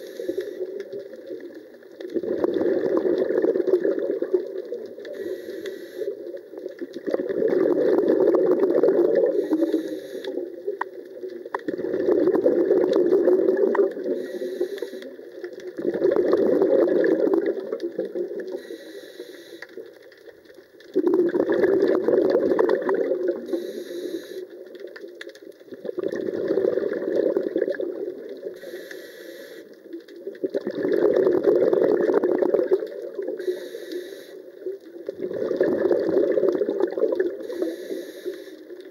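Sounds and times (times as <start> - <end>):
regulator inhalation hiss: 0.0 - 0.6, 5.1 - 6.2, 9.4 - 10.4, 14.2 - 15.1, 18.6 - 19.7, 23.5 - 24.5, 28.6 - 29.7, 33.4 - 34.4, 37.4 - 38.7
bubbling regulator exhalations: 2.1 - 6.2, 6.8 - 10.6, 11.6 - 19.6, 21.0 - 24.5, 25.7 - 29.7, 30.4 - 34.4, 35.1 - 38.9.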